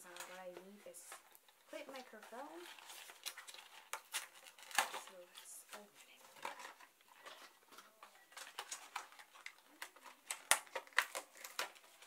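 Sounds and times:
plastic packaging clicking and crackling: 0.0 - 12.0.

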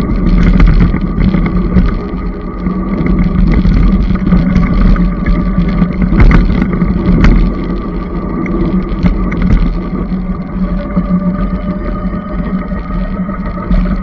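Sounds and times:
clicks and rattles: 0.0 - 10.1
electric motor hum: 0.0 - 14.0
wind on microphone: 0.0 - 14.0.

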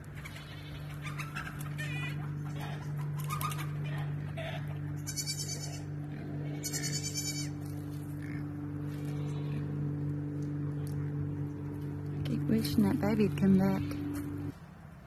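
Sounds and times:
goats bleating: 0.1 - 1.2, 4.0 - 9.7.

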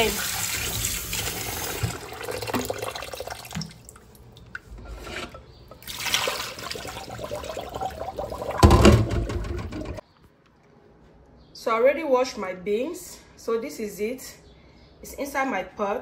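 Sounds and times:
tap water running into bowl: 0.0 - 10.0
water splashing into sink: 0.0 - 10.0.

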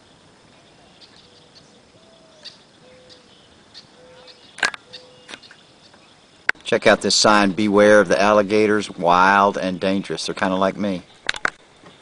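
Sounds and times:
soft whistled calls: 0.0 - 6.2
faint outdoor ambience: 0.0 - 12.0.

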